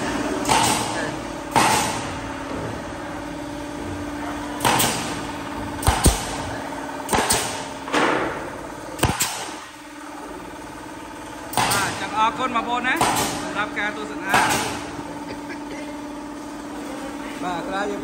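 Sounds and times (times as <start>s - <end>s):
steady low hum: 0.0s - 18.0s
nail gun firing: 0.4s - 2.2s, 4.6s - 8.4s, 9.0s - 9.7s, 11.5s - 12.2s, 12.8s - 13.6s, 14.3s - 14.9s.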